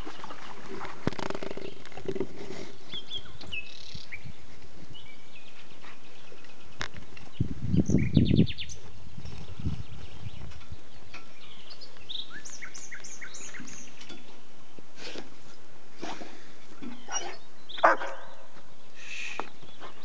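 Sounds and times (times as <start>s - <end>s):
small songbirds chirping: 2.5s - 15.0s, 16.7s - 20.0s
wind rumble on microphone: 3.9s - 5.5s, 6.8s - 11.8s.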